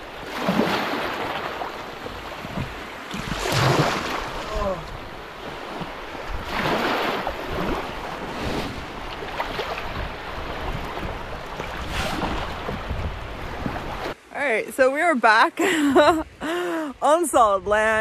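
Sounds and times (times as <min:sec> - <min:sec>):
small waves splashing: 0:00.0 - 0:17.0
wind on microphone: 0:02.0 - 0:14.2, 0:17.2 - 0:18.0.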